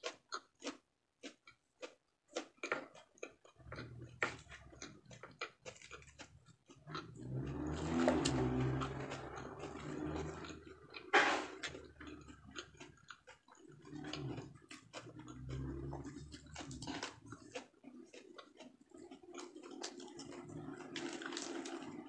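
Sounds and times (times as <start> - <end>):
chewing and mouth clicks: 0.0 - 22.0
lettuce leaves crackling: 19.9 - 22.0.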